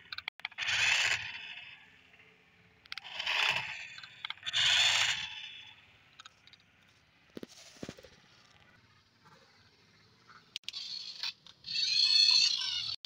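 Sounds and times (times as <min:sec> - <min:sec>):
toy car motor whirring: 0:00.4 - 0:01.9, 0:02.9 - 0:06.3, 0:10.6 - 0:13.0.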